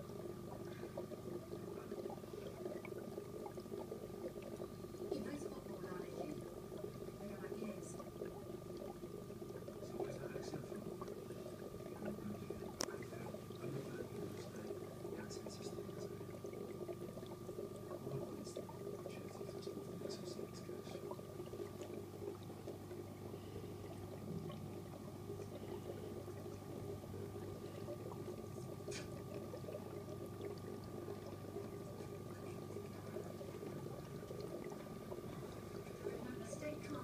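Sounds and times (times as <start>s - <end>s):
aquarium filter humming: 0.0s - 37.0s
water trickling and bubbling: 0.0s - 37.0s
faint clicks: 12.6s - 13.7s.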